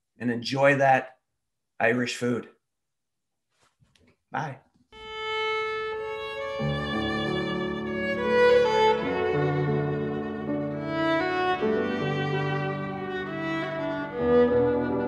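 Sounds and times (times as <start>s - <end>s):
fiddle bowed notes: 5.0s - 15.0s
piano chords: 5.0s - 15.0s.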